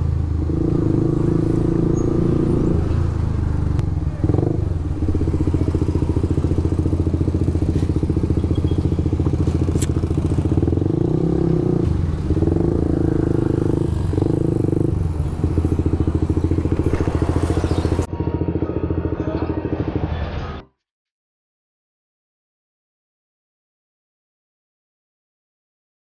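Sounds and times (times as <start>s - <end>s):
motorcycle engine idling loudly: 3.0s - 20.4s.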